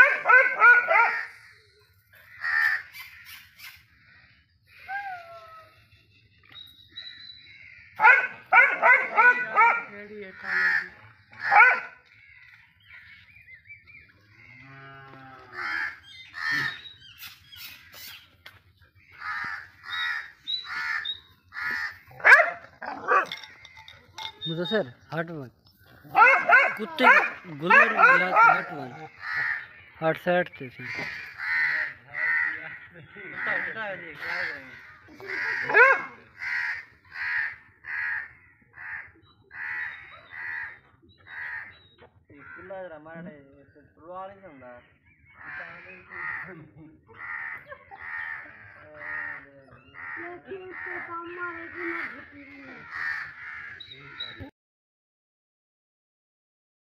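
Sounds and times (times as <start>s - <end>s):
dog barking: 0.0s - 1.3s, 8.0s - 9.9s, 11.4s - 12.0s, 22.2s - 23.4s, 26.1s - 28.9s, 35.6s - 36.2s
animal harsh calls: 14.3s - 18.2s, 19.2s - 24.8s, 26.1s - 30.0s, 30.8s - 41.8s, 45.4s - 54.5s.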